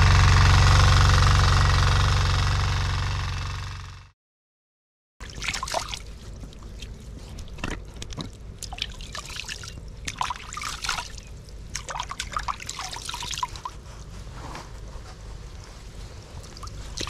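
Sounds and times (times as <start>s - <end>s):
water splashing and dripping: 5.2s - 13.8s, 16.3s - 17.0s.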